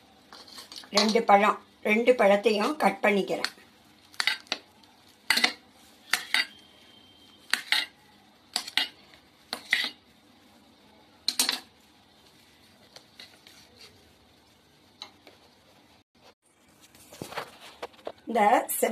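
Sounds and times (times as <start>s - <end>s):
knife clinking against steel bowl: 5.3s - 6.6s.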